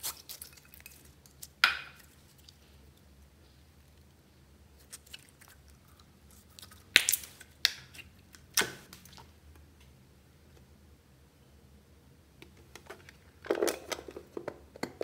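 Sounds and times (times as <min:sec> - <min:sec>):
slime popping and squelching: 0:06.4 - 0:09.3.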